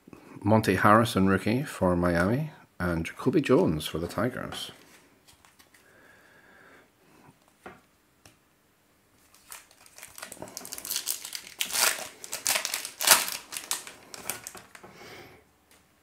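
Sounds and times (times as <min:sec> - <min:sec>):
plastic wrapper crinkling: 0:09.2 - 0:14.9.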